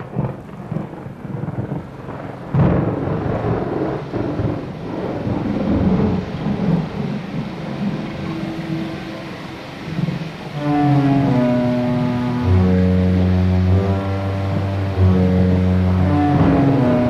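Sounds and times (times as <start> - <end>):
loud thunderclap: 0.0 - 10.6, 16.0 - 17.0
rain: 0.0 - 17.0
rolling thunder: 0.0 - 17.0.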